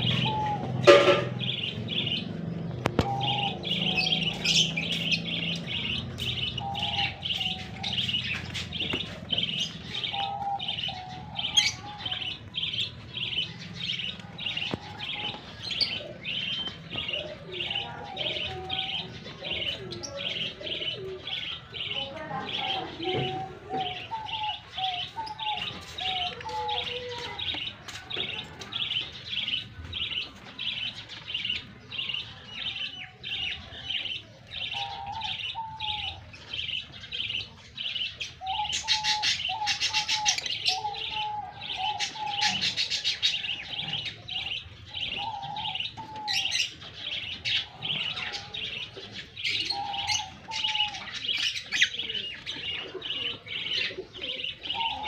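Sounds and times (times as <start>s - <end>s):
lower bird warbling: 0.0s - 8.9s
lovebirds chirping: 0.0s - 55.0s.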